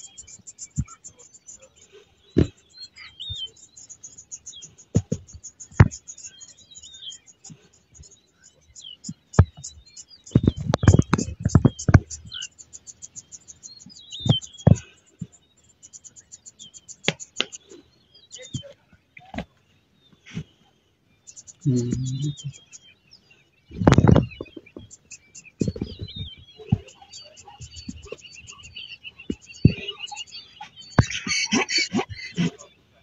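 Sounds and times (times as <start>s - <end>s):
insects trilling: 0.0s - 19.6s, 20.2s - 33.0s
birds chirping: 0.0s - 33.0s
low thumps and rustling: 4.9s - 6.0s, 9.4s - 12.4s, 23.7s - 27.0s.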